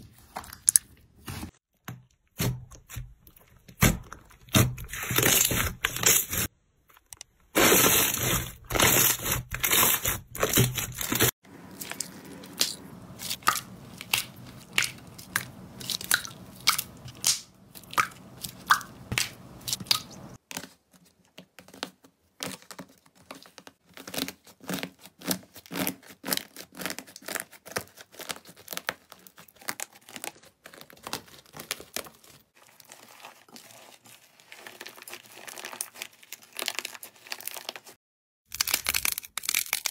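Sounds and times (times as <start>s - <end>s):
dried slime crust crackling: 7.6s - 20.4s, 24.0s - 39.9s.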